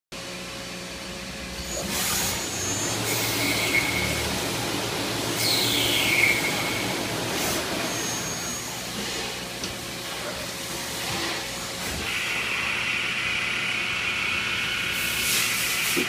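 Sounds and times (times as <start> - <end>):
lathe spindle whine: 1.6 - 8.9
metal cutting noise: 1.6 - 9.4.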